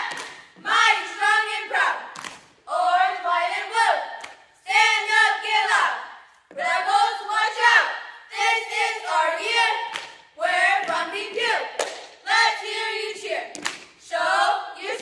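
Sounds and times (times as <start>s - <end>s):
girls chanting a cheer: 0.0s - 15.0s
sharp claps: 0.1s - 0.4s, 2.1s - 2.5s, 4.2s - 4.5s, 9.9s - 10.2s, 11.8s - 12.2s, 13.5s - 14.0s.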